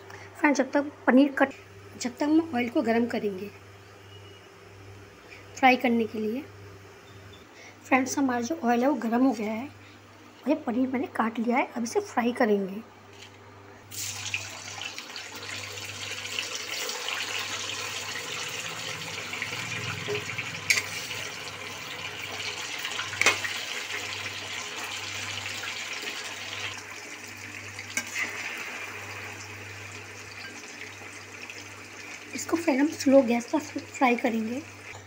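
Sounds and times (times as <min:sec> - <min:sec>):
food sizzling in hot oil: 0:13.9 - 0:35.0.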